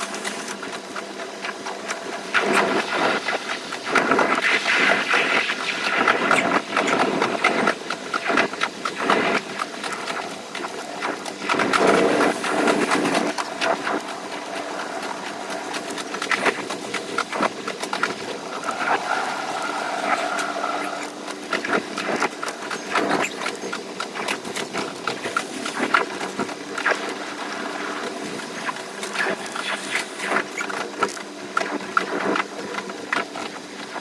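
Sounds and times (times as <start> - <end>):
train clatter and rattle: 0.0 - 34.0.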